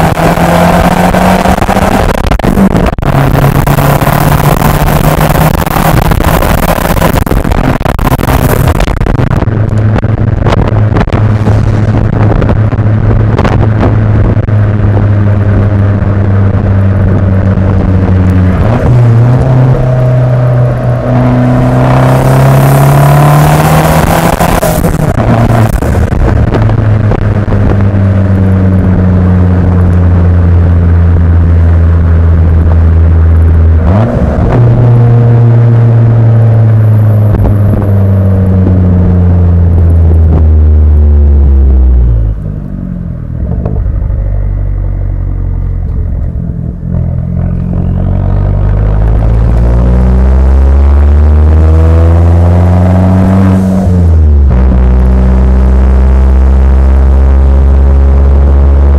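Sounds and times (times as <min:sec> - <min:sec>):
car exhaust droning: 0:00.0 - 0:58.9
wind noise: 0:00.0 - 0:58.9
exhaust pops: 0:01.4 - 0:20.0, 0:23.9 - 0:40.8, 0:43.2 - 0:50.2.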